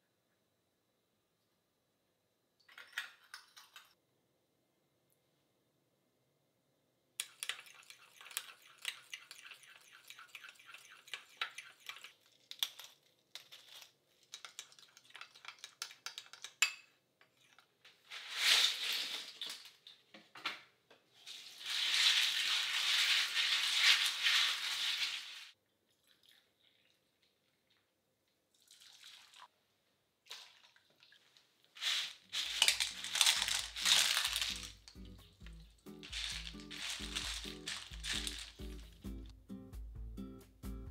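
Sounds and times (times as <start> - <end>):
clams clattering in metal strainer: 31.8 - 34.9, 36.0 - 38.8
soft background music: 34.0 - 40.9.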